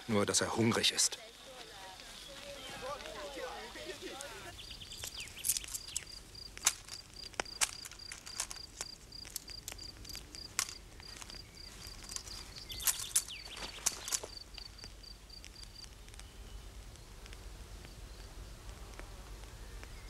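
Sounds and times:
high insect-like chirping: 1.2s - 16.6s
sharp clicks and snaps: 4.8s - 20.0s.

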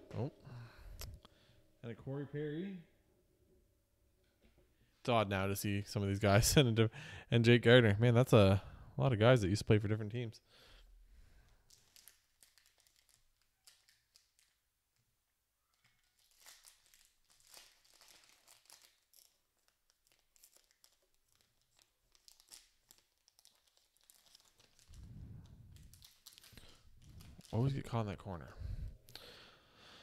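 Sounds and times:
foil wrapper crinkling and tearing: 11.6s - 14.6s, 15.6s - 28.2s
low muffled rumble: 24.9s - 26.0s.

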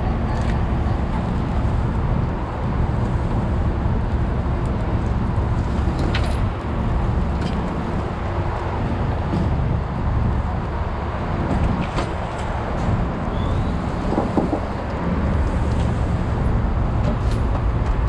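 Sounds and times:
diesel engine rumbling: 0.0s - 18.0s.

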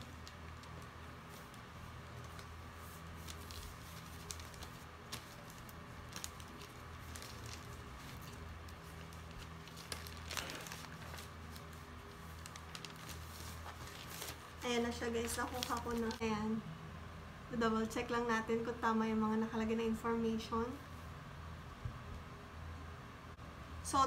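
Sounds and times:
paper and plastic rustling: 0.0s - 16.2s
steady low hum: 0.0s - 24.0s.

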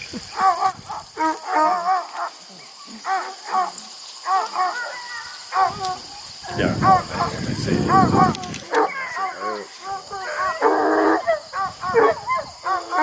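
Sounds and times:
puppies yipping and whining: 0.2s - 1.8s.

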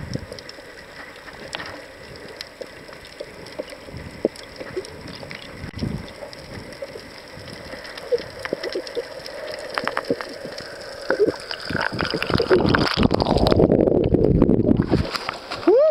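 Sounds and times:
clicks underwater: 0.0s - 15.6s.

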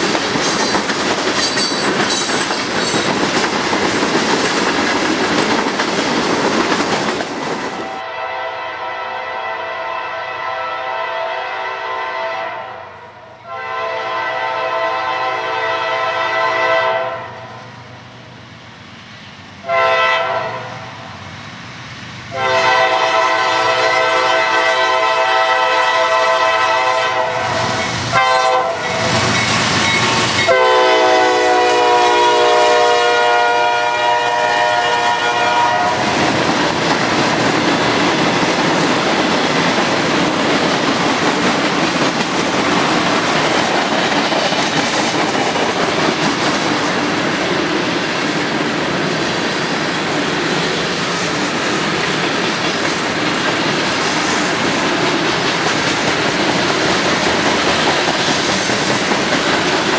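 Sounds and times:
freight cars rolling on rails: 0.0s - 8.0s, 22.5s - 59.9s
locomotive air horn blasts: 7.8s - 17.6s, 19.6s - 20.8s, 22.3s - 29.2s, 30.5s - 36.1s.

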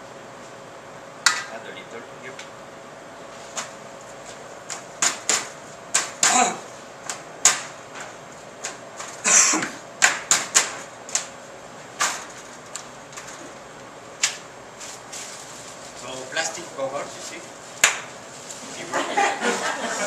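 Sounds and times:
plastic crinkling rustle: 14.8s - 18.9s.

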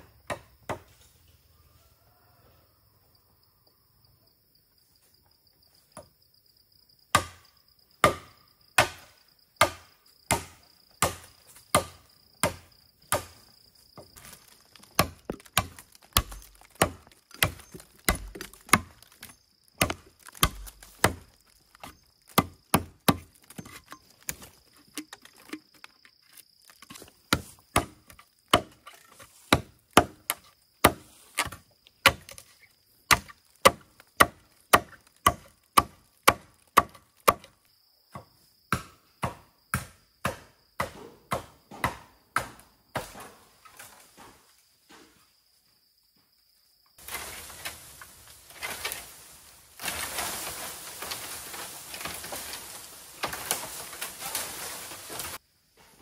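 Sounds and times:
blade chopping bamboo: 14.2s - 32.5s, 33.1s - 37.6s.

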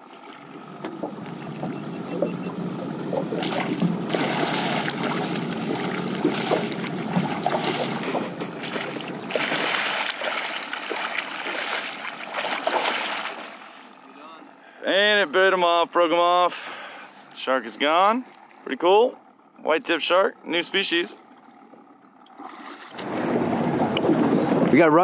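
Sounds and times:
water splashing against kayak: 0.0s - 14.0s, 21.2s - 24.3s.

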